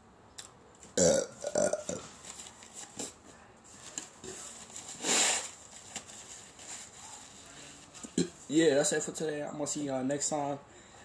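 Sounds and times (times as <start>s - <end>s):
person blowing nose: 4.9s - 5.6s.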